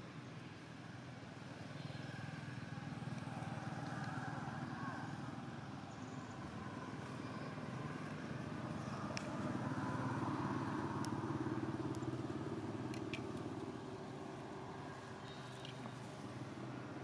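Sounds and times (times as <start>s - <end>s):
faint sharp ticks: 9.1s - 9.4s, 12.9s - 13.7s.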